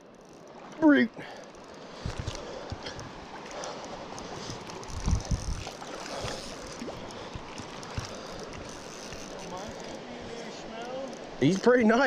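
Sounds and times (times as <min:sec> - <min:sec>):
river water running: 0:00.0 - 0:12.0
wind buffeting microphone: 0:04.4 - 0:06.4.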